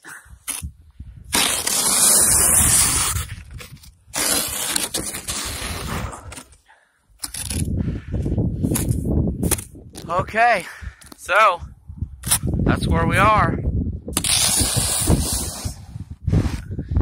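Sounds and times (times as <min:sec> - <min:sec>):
plastic shovel scraping through snow: 0:01.3 - 0:06.6, 0:14.2 - 0:16.7.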